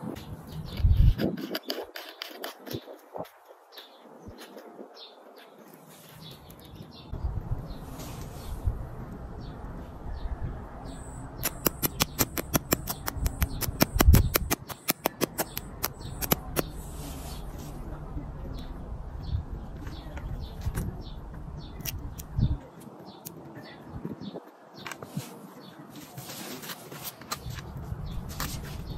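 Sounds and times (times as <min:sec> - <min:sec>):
birds chirping: 0:00.0 - 0:28.9
fast run of sharp clicks: 0:11.4 - 0:16.7.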